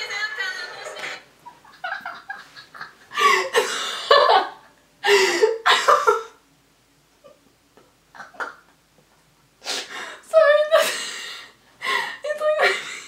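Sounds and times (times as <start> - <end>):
woman laughing hard: 1.5 - 6.4.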